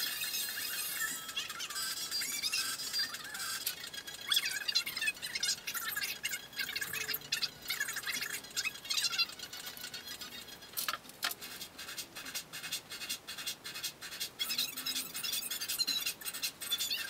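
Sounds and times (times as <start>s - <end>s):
pencil scratching on paper: 11.3s - 16.8s.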